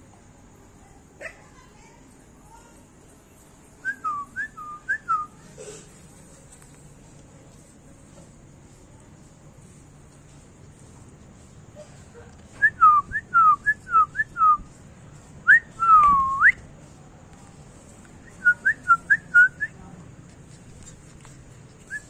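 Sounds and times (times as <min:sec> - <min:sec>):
person whistling: 0:15.5 - 0:16.6.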